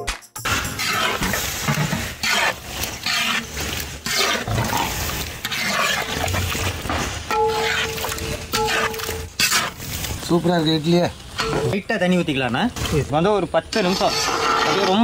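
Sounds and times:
ladle stirring thick gravy in pot: 0.8s - 10.3s, 12.7s - 15.0s.

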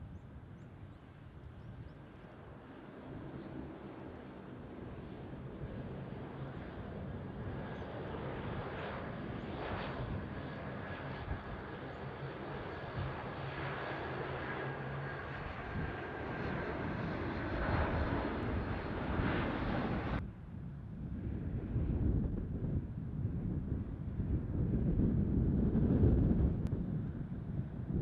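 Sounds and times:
jet engines rumbling and whining: 0.0s - 28.0s.

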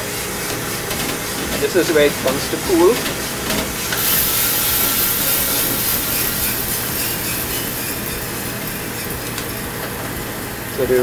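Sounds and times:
roaster machine hum: 0.0s - 11.0s
coffee beans rattling: 4.0s - 11.0s.

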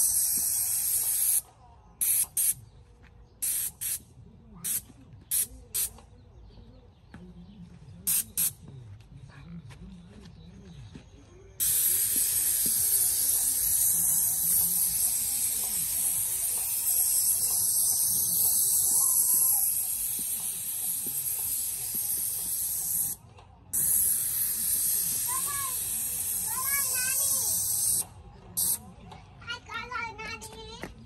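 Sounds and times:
spray gun hissing: 0.0s - 1.4s, 2.0s - 2.6s, 3.4s - 4.0s, 4.6s - 5.9s, 8.1s - 8.5s, 11.6s - 23.2s, 23.8s - 28.8s.

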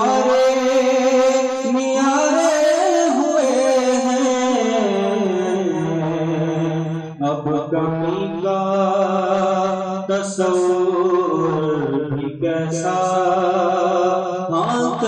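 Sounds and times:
person singing devotional song: 0.0s - 15.0s.

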